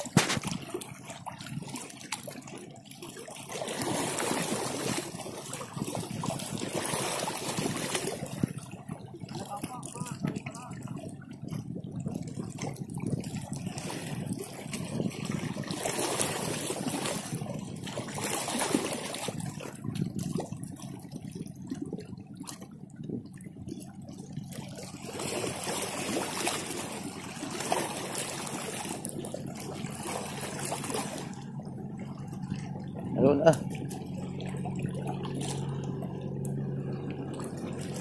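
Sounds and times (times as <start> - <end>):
seawater washing among rocks: 0.0 - 38.0.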